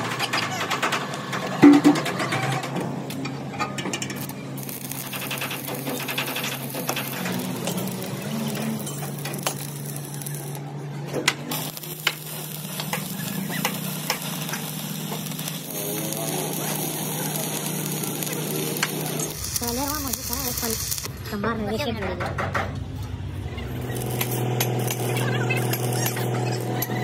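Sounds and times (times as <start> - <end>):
welding arc crackling: 3.9 - 10.7, 11.3 - 21.4, 23.6 - 27.0.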